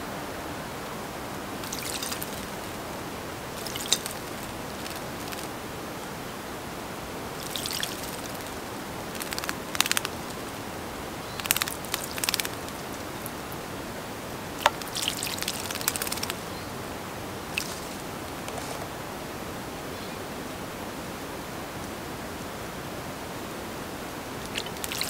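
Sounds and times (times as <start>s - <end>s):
steady hiss: 0.0s - 25.0s
bird splashing in water: 1.6s - 5.6s, 7.4s - 10.6s, 11.3s - 13.5s, 14.5s - 16.5s, 17.4s - 18.9s, 24.4s - 25.0s.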